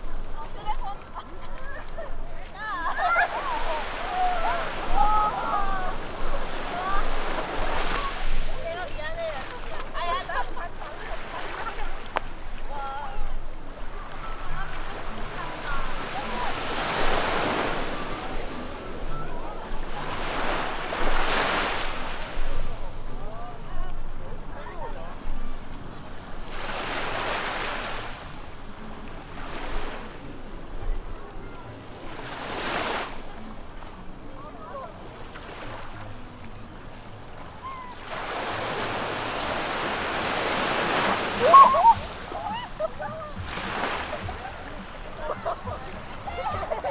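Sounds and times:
faint voices: 0:00.0 - 0:46.9
waves breaking on beach: 0:00.0 - 0:46.9
short high-pitched cries: 0:41.4 - 0:42.7.

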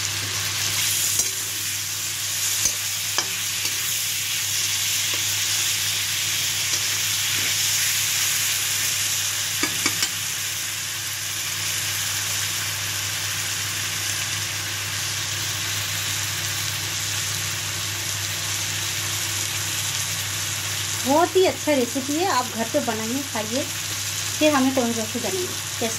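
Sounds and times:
sauce sizzling in oil: 0:00.0 - 0:25.9
steel spoon clicking against pan: 0:09.6 - 0:10.2.

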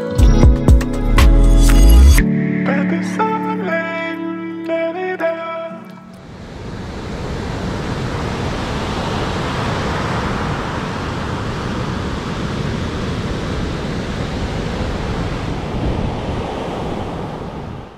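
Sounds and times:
ocean surf washing: 0:06.0 - 0:17.9
wind rumbling on microphone: 0:06.3 - 0:17.9.

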